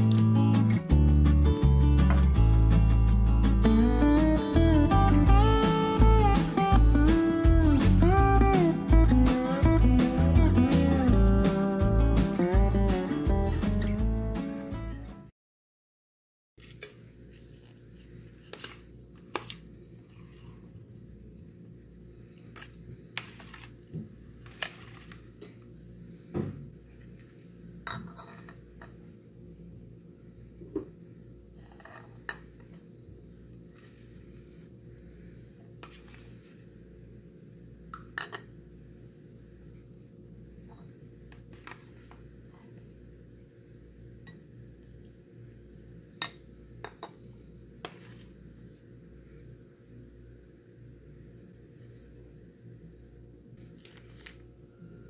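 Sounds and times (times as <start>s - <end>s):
steady low hum: 16.7s - 55.0s.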